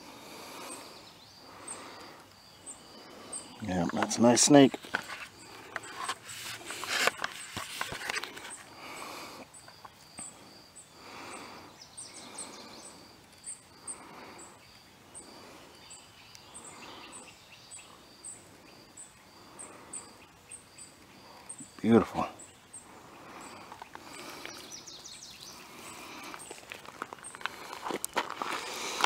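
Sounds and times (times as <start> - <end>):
insect trilling: 0.0 - 29.0
handling clicks and rustles: 3.6 - 8.7.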